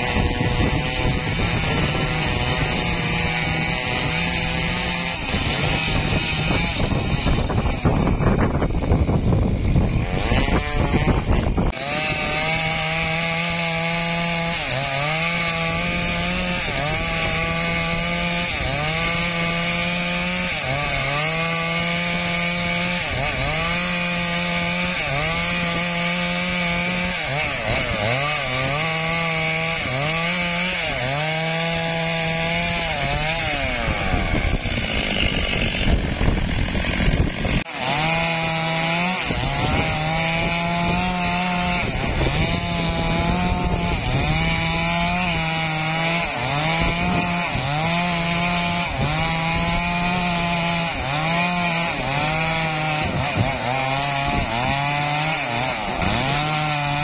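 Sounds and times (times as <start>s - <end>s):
chainsaw cutting log: 0.0s - 57.0s.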